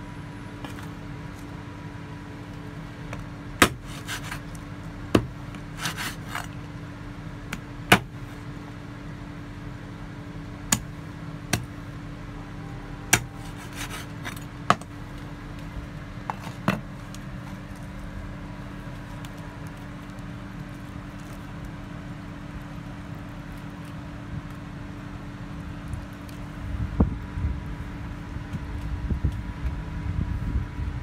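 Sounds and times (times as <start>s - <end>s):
steady low hum: 0.0s - 31.0s
cleaver chopping on wooden board: 3.6s - 4.3s, 5.1s - 6.2s, 7.9s - 8.1s, 13.1s - 14.0s.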